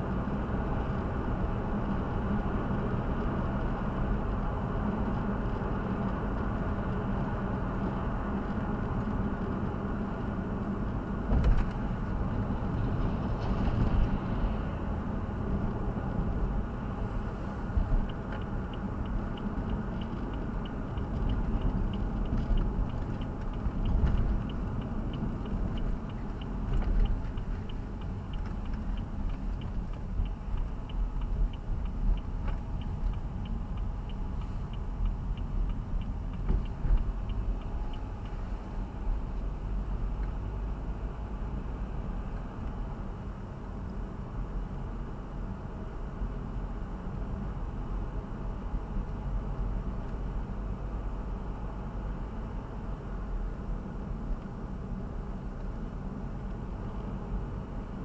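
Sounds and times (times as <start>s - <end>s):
car road and engine noise: 0.0s - 58.0s
light regular ticking: 18.0s - 39.0s.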